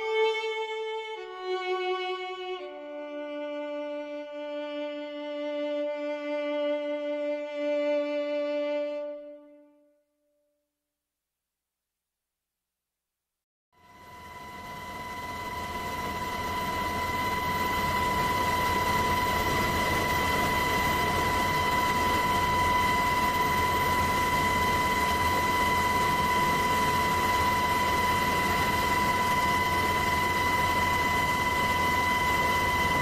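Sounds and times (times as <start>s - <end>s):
aircraft engine whine and rumble: 13.8s - 33.0s.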